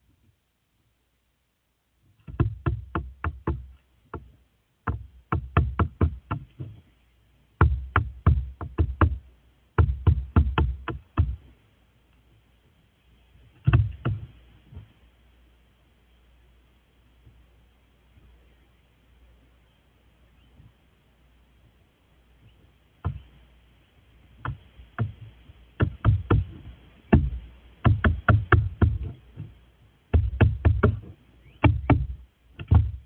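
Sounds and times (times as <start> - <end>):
beak knocking on wood: 2.2 - 6.8, 7.6 - 9.2, 9.8 - 11.4, 13.6 - 14.3, 23.0 - 23.3, 24.4 - 29.5, 30.1 - 33.0.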